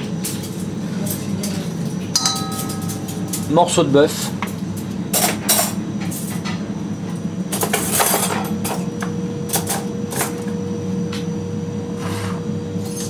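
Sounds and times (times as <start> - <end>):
utensils clinking on plates: 0.2 - 6.6, 7.5 - 8.9, 12.8 - 13.0.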